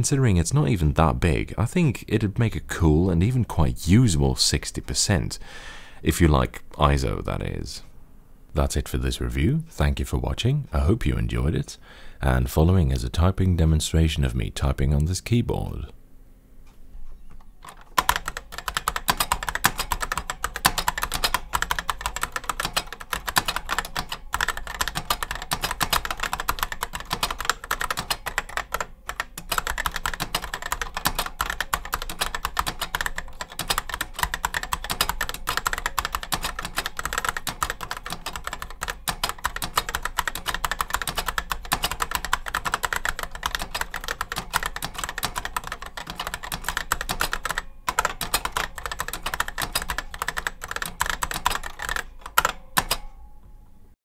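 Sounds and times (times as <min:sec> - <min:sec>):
fast keyboard typing: 0:17.6 - 0:53.1.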